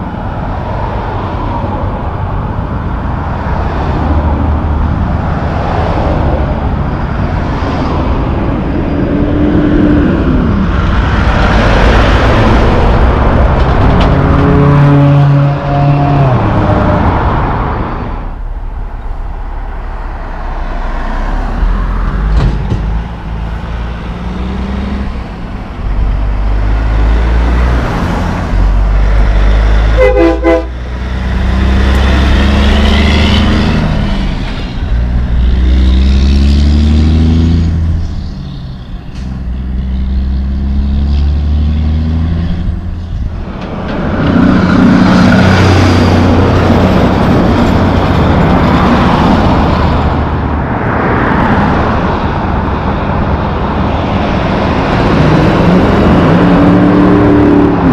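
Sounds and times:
diesel trucks passing: 0.0s - 57.9s
truck horn toot: 14.4s - 17.0s, 29.9s - 30.8s.

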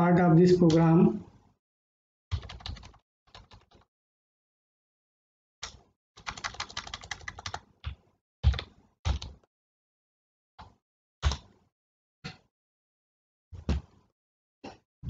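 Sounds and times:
computer keyboard keystrokes: 2.3s - 3.8s, 5.6s - 9.4s.

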